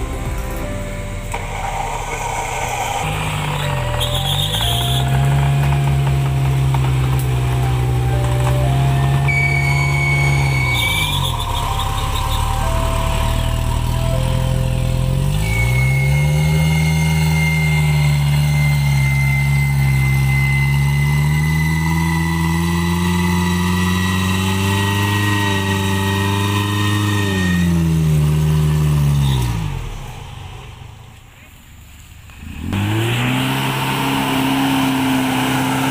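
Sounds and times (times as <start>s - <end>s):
thin high whine: 0.0s - 23.4s
engine revving hard: 0.0s - 31.0s, 32.4s - 35.9s.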